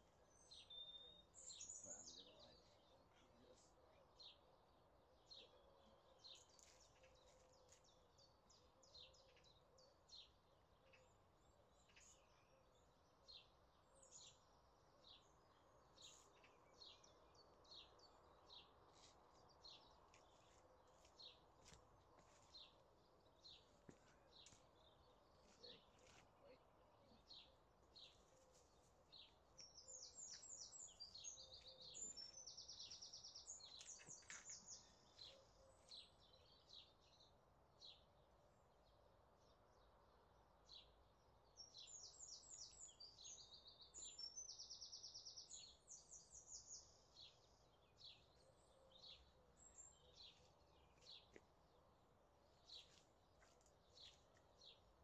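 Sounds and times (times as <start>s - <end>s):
faint bird chirps: 23.6s - 37.0s.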